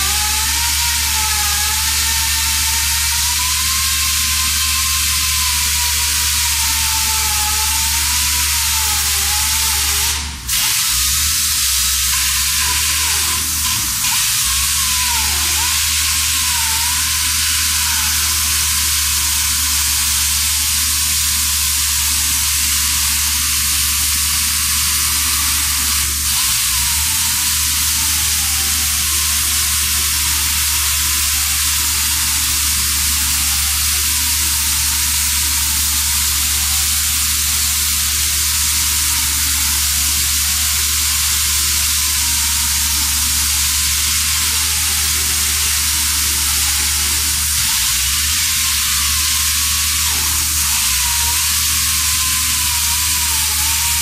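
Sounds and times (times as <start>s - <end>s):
hissing air exhaust: 0.0s - 54.0s
chain saw cutting concrete: 41.9s - 54.0s.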